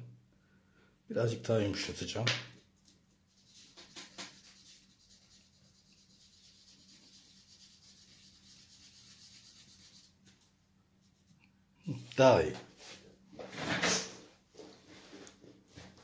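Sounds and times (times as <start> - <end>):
cotton rubbing on paper: 3.3 - 11.4.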